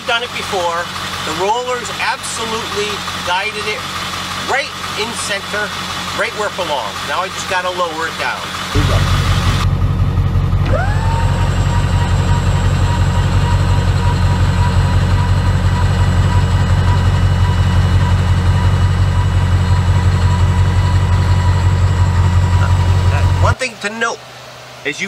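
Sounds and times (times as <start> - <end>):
loud low rumble: 8.7 - 23.6
electric motor whine: 10.5 - 23.6.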